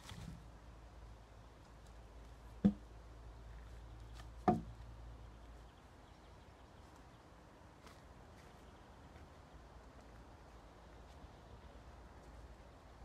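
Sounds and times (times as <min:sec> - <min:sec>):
wooden logs knocking together: 0:02.5 - 0:03.0, 0:04.1 - 0:04.9.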